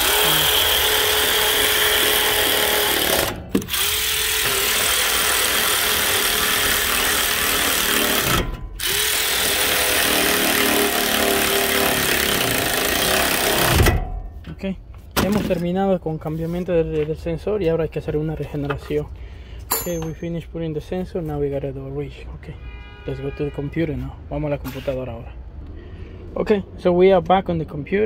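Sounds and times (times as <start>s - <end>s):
handheld power tool running: 0.0s - 13.9s.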